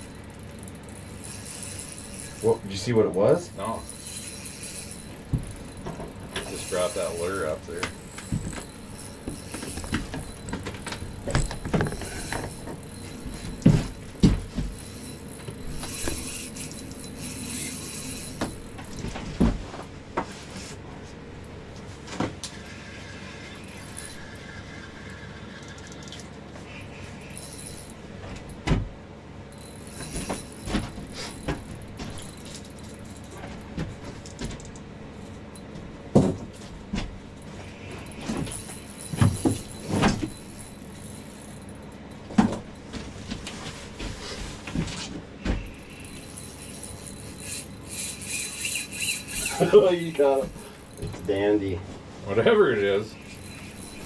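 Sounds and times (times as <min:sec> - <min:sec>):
steady low hum: 0:00.0 - 0:54.0
fishing gear knocking and rattling: 0:03.6 - 0:19.8, 0:29.6 - 0:43.4, 0:45.5 - 0:51.7, 0:53.1 - 0:54.0.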